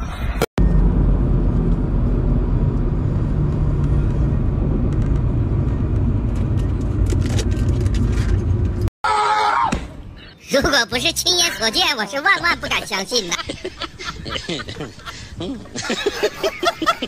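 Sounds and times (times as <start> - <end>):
car engine rumble inside cabin: 0.6 - 8.9.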